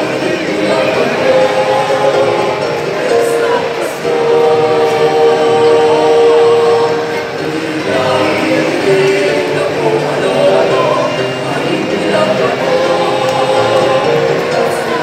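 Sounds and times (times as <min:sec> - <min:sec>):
small choir singing: 0:00.0 - 0:15.0.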